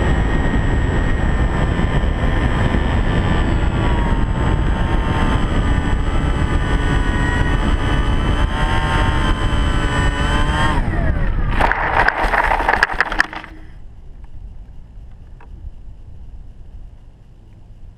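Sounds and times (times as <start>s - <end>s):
faint wind noise: 0.0s - 17.9s
model airplane motor and propeller: 0.0s - 17.9s
skidding through dry grass: 11.2s - 13.8s.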